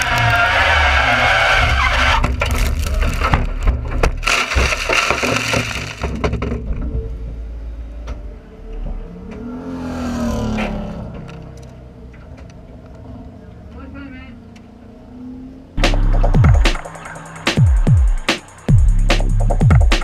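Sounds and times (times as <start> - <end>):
car body crunching and banging: 1.5 - 7.2
car engine running: 15.8 - 19.9.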